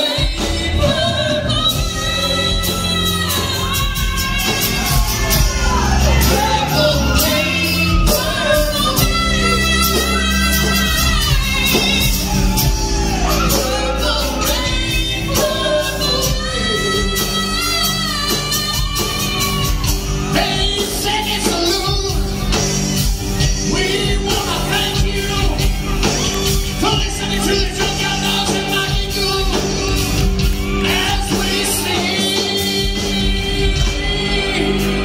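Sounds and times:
woman singing: 0.0s - 22.6s, 23.4s - 35.0s
live country-rock band: 0.0s - 35.0s.

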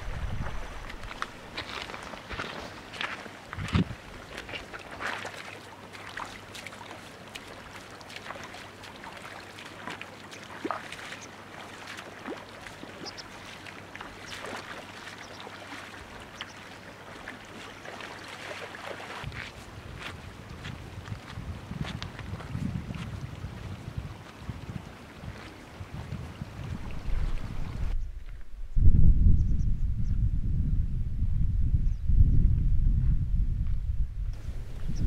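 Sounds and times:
splashes of wading: 0.0s - 28.0s
stony river trickling: 0.0s - 28.5s.

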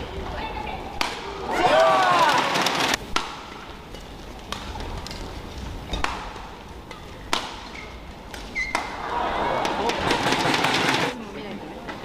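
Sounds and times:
rackets hitting shuttlecock: 1.0s - 1.4s, 2.3s - 3.7s, 5.9s - 11.0s.

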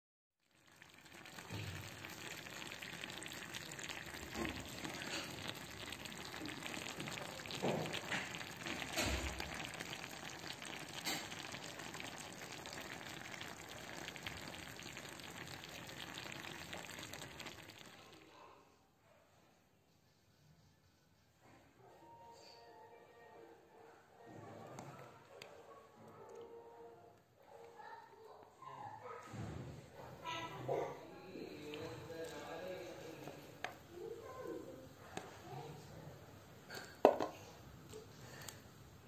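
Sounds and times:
food sizzling with pops: 0.4s - 18.3s, 36.7s - 38.7s.

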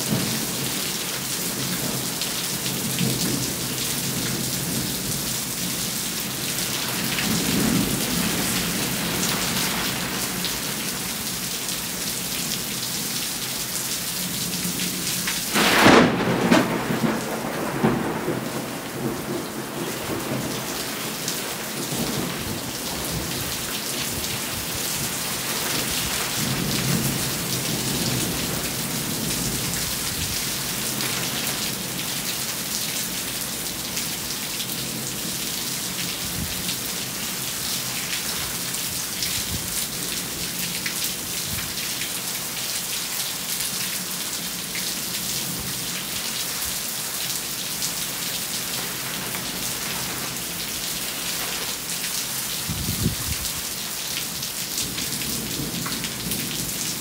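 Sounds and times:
steady rain falling: 0.0s - 57.0s
sharp thunderclap: 15.5s - 20.6s
rolls of thunder: 15.6s - 20.6s.

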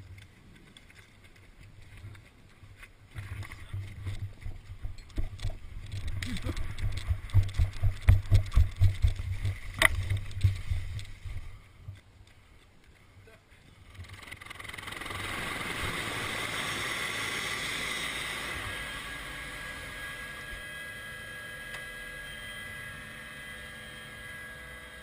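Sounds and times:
running footsteps with gear jostling: 0.0s - 13.0s
helicopter noise: 3.8s - 11.5s, 14.0s - 25.0s.

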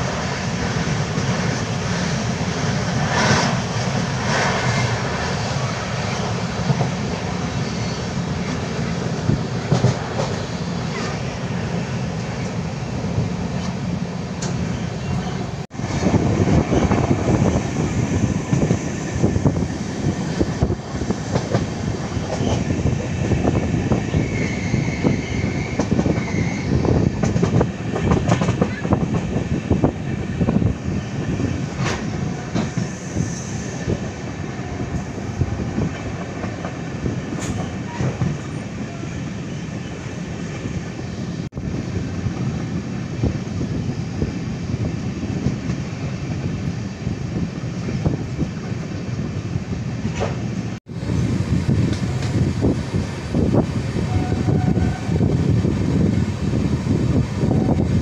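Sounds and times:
train wheels rumbling on rail: 0.0s - 58.0s
clatter over track: 9.6s - 10.4s, 27.0s - 29.4s.

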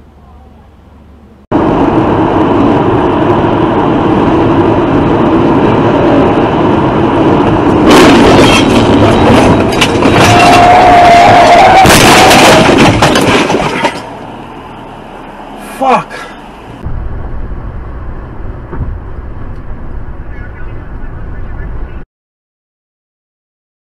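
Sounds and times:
road and wind noise in car: 0.0s - 22.0s
sharp bangs and rattles: 7.4s - 14.4s
wavering squeal: 10.0s - 12.5s.

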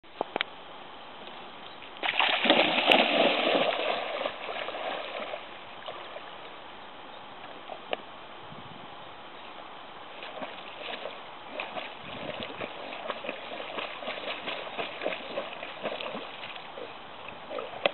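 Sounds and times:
dog splashing into water: 2.0s - 6.0s, 10.2s - 16.9s
water churning: 2.0s - 6.4s, 10.1s - 17.9s.

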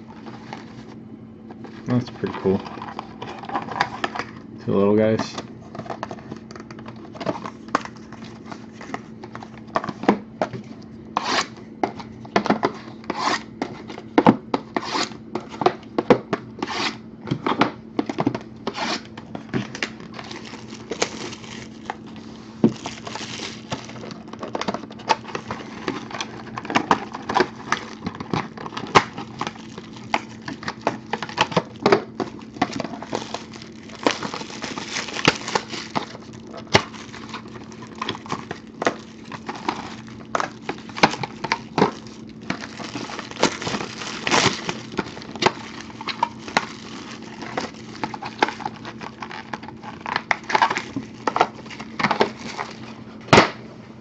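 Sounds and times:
steady low hum: 0.0s - 54.0s
plastic wrap crinkling and tearing: 19.6s - 52.9s.

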